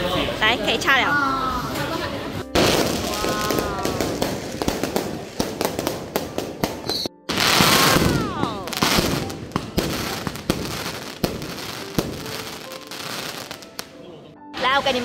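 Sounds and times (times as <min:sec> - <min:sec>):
fireworks crackling bangs: 0:01.7 - 0:13.9
firework whistles sliding down: 0:06.8 - 0:08.1.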